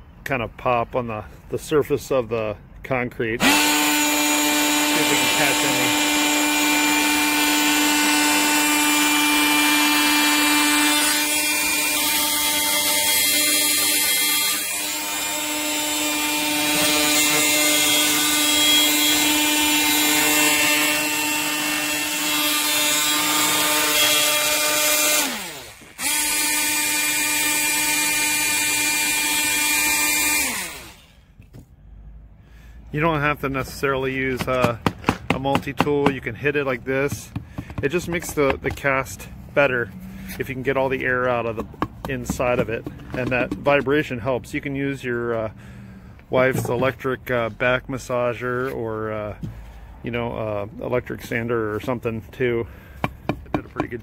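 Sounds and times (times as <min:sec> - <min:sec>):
oscillating multi-tool buzzing: 0:03.4 - 0:31.2.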